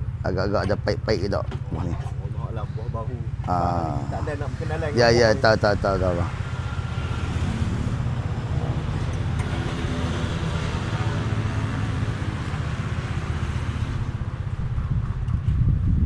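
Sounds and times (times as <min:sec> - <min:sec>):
engine rumbling: 0:00.0 - 0:16.0.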